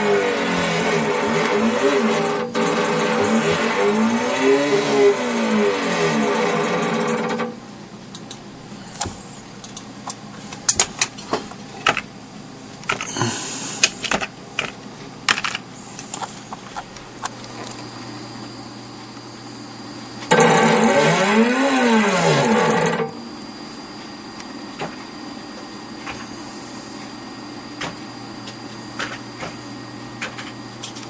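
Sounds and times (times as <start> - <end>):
stepper motors whining: 0.0 - 10.3, 15.8 - 31.0
low hum: 0.0 - 11.2.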